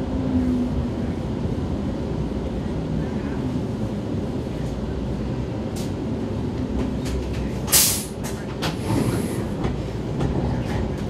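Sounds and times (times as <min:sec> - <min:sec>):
train low rumble: 0:00.0 - 0:11.0
train air hiss: 0:07.7 - 0:10.1.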